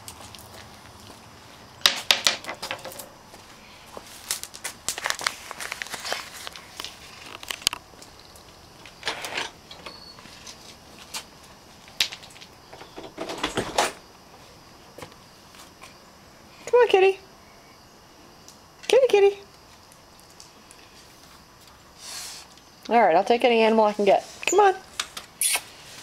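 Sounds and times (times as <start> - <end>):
small stones clattering on concrete: 1.8 - 3.1, 4.1 - 9.5, 11.9 - 13.6.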